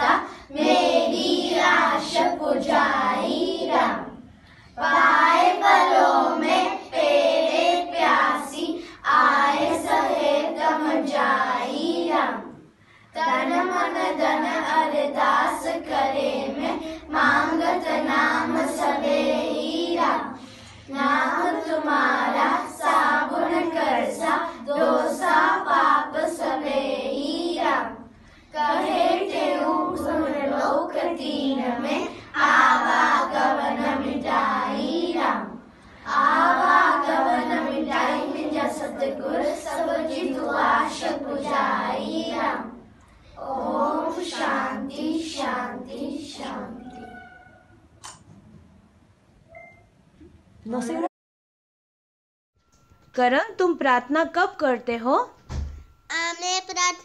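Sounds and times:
children singing in unison: 0.0s - 4.2s, 4.8s - 12.6s, 13.2s - 47.1s.

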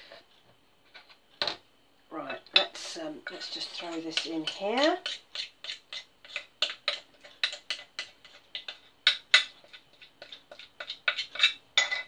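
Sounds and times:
utensil scraping a mixing bowl: 2.6s - 11.6s.

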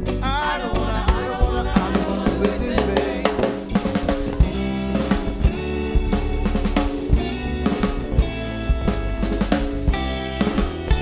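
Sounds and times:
reggae band playing: 0.0s - 11.0s.

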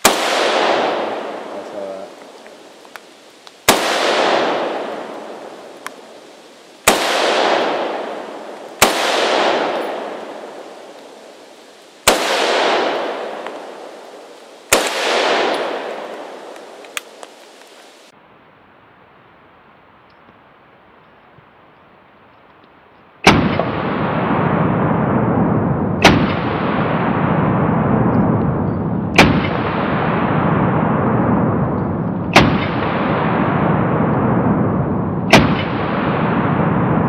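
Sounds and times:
rifle shots echoing: 0.0s - 2.2s, 3.6s - 6.1s, 6.8s - 11.4s, 12.0s - 17.3s, 23.2s - 37.0s.

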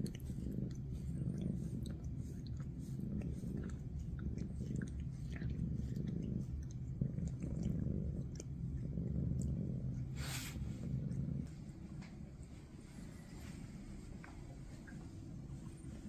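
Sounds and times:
cat tongue licking: 0.0s - 10.6s
cat purring: 0.0s - 16.0s
breathy sniff: 10.0s - 10.9s.

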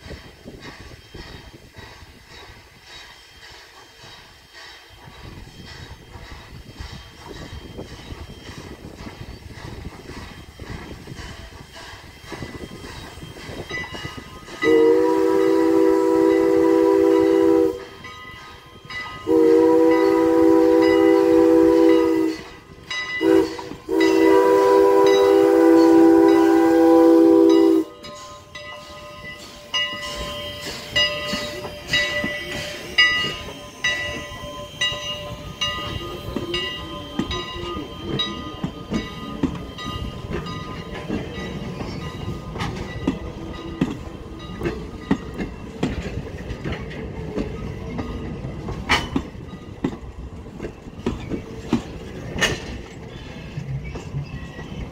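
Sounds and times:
steam whistle blasts: 14.6s - 18.0s, 19.2s - 22.6s, 23.2s - 28.1s
wheels clicking over rail joints: 27.5s - 54.9s.

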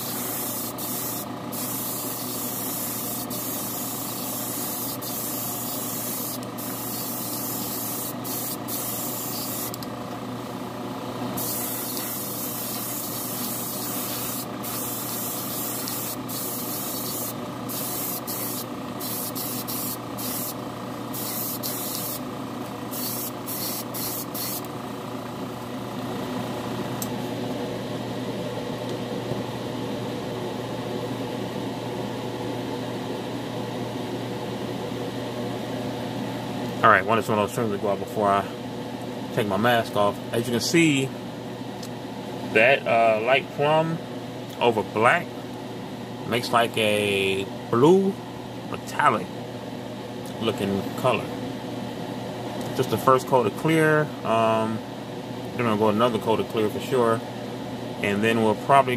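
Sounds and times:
paint spray gun hissing: 0.0s - 9.8s, 11.4s - 22.3s, 22.9s - 24.7s
steady low hum: 0.0s - 58.9s.

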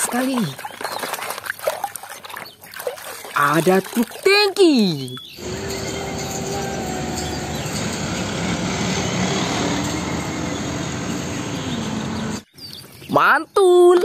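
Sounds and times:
faint engine tone sliding down: 5.4s - 12.4s
road traffic noise: 5.4s - 12.5s
truck diesel engine passing: 5.4s - 12.5s.

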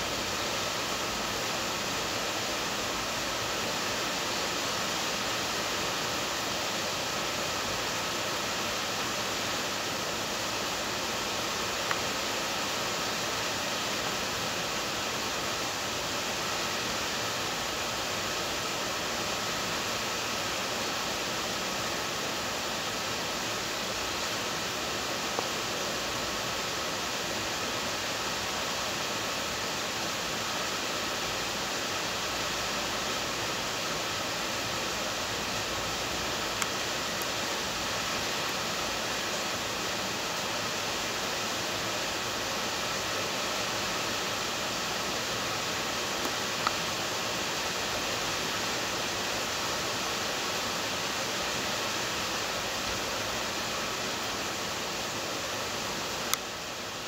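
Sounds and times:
heavy rain hissing: 0.0s - 57.0s.

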